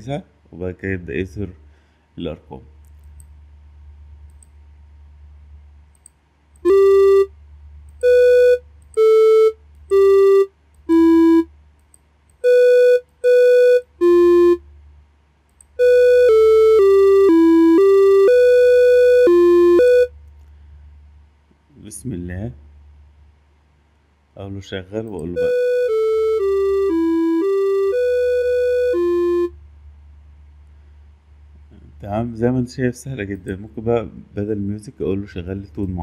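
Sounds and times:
electronic melody notes: 6.6s - 7.4s, 8.0s - 11.5s, 12.4s - 14.6s, 15.8s - 20.2s, 25.2s - 29.6s.

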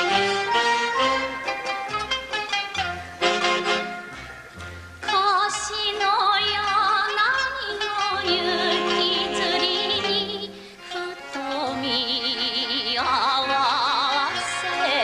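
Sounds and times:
orchestra playing: 0.0s - 5.4s, 7.8s - 12.3s
woman singing with vibrato: 5.0s - 15.0s.

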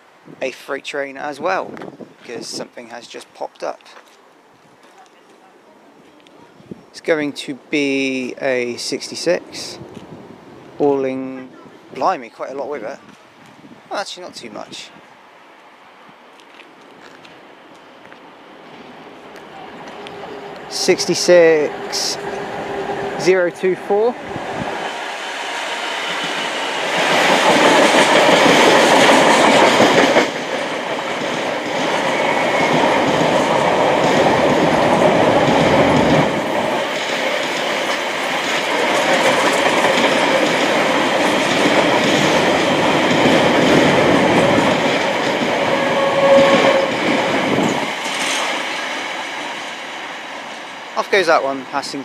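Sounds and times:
diesel locomotive engine: 18.6s - 52.0s
train wheel squeal: 19.6s - 20.7s, 45.6s - 49.5s
freight wagons clattering over rails: 26.0s - 51.2s.

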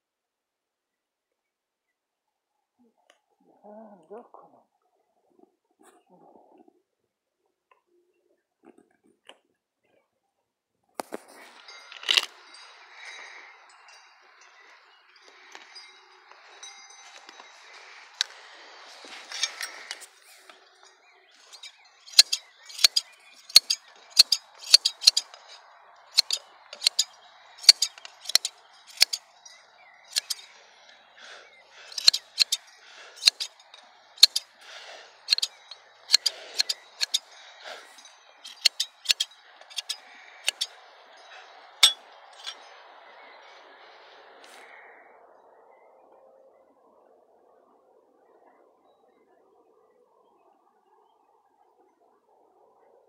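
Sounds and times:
rustle of handling: 11.0s - 29.3s
scissors snipping: 26.2s - 29.2s.

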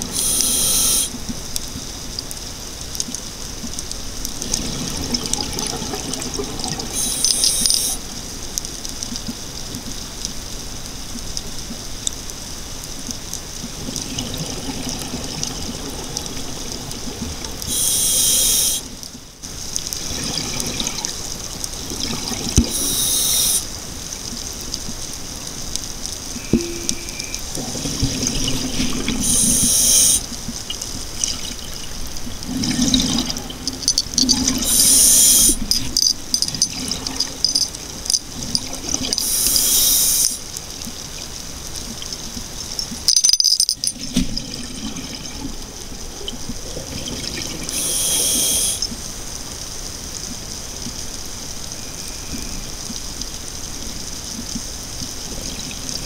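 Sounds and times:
regulator breath hissing: 0.0s - 1.2s, 7.0s - 8.0s, 17.7s - 18.9s, 22.7s - 23.7s, 29.2s - 30.3s, 34.6s - 35.8s, 39.2s - 40.4s, 47.7s - 49.0s
underwater bubbling: 26.3s - 43.1s.

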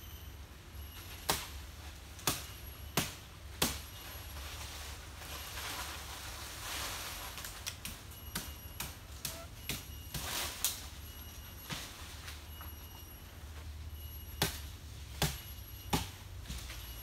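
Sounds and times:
dry fronds rustling: 1.0s - 17.0s
sharp knocks on palm stems: 1.3s - 1.5s, 2.2s - 3.9s, 14.4s - 16.8s.

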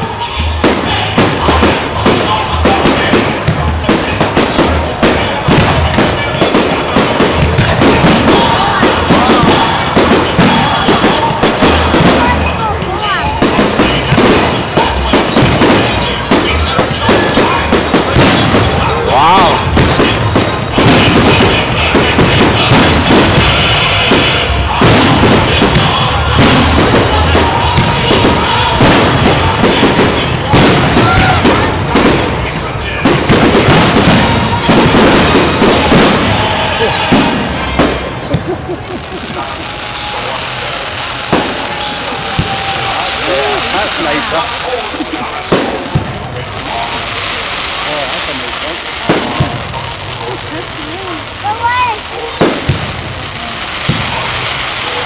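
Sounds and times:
loud music with heavy drum beat: 0.0s - 32.4s, 33.0s - 38.5s
fireworks banging and crackling: 0.0s - 55.0s.

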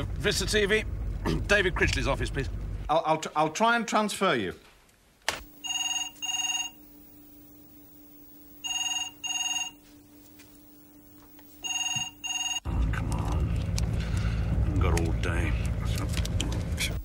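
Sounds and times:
telephone double ring: 5.6s - 6.8s, 8.6s - 9.8s, 11.6s - 12.6s.

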